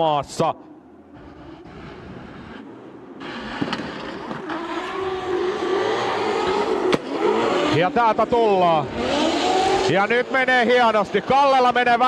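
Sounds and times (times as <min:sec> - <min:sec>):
drift car engines revving: 0:01.1 - 0:12.0.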